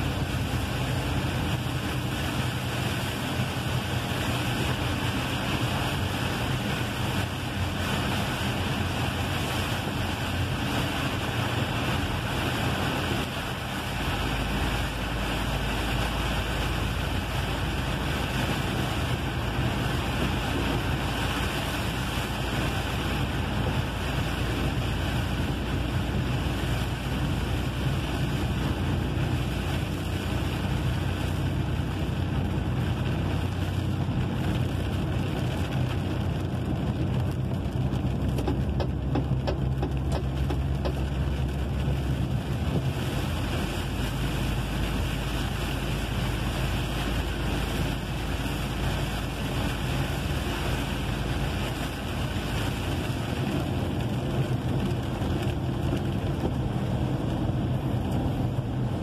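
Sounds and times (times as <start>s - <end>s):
rain and tyre spray hiss: 0.0s - 59.0s.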